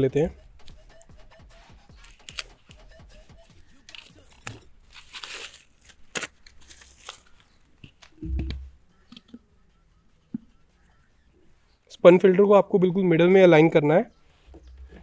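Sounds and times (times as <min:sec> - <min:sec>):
plastic wrapping tearing and crinkling: 0:02.0 - 0:02.6, 0:03.7 - 0:07.6.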